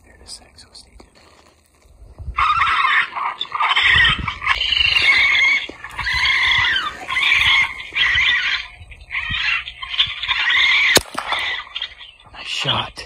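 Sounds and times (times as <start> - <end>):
electronic wavering animal cries: 2.3 - 12.3.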